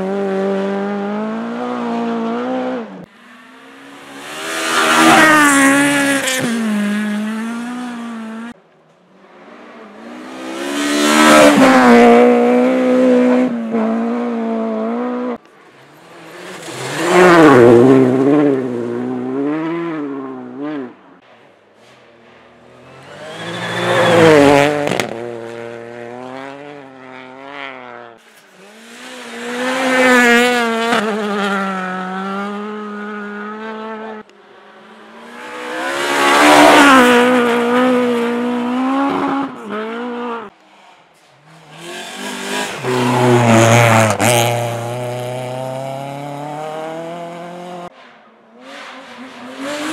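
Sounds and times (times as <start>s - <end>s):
rally cars revving past: 0.0s - 8.6s, 9.2s - 21.0s, 22.2s - 40.6s, 41.4s - 48.0s, 48.6s - 49.9s.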